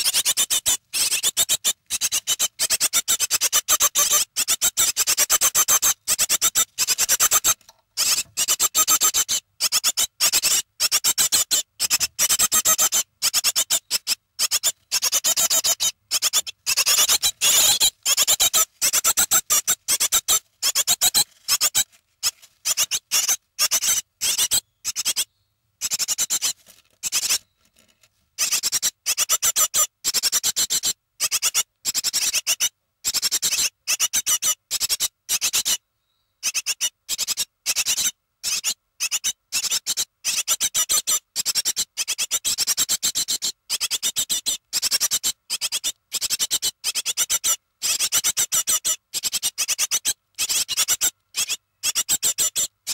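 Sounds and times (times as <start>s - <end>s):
nestling birds chirping: 0.0s - 21.8s.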